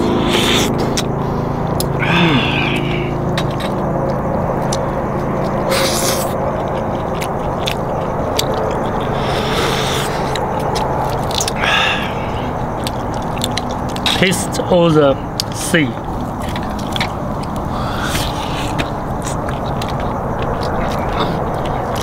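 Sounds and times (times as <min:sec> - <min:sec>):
steady low hum: 0:00.0 - 0:22.0
person slurping and chewing: 0:00.1 - 0:01.1, 0:05.5 - 0:14.2.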